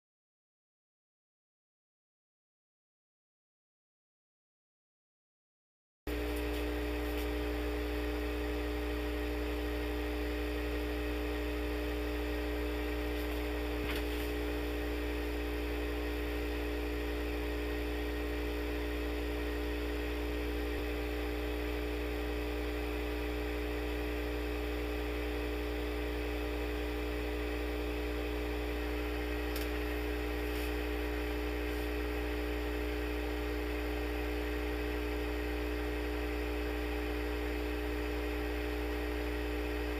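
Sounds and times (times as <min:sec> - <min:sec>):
shaker humming: 0:29.6 - 0:32.1.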